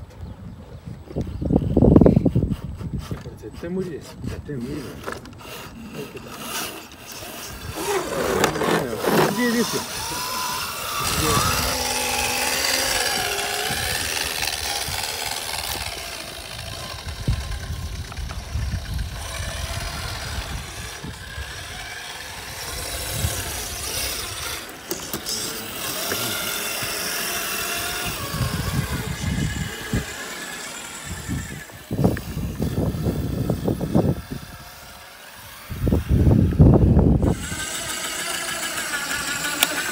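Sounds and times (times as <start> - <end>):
electric motors whining: 0.1 - 39.9
tyres scraping on stone: 2.3 - 10.0, 20.0 - 31.0.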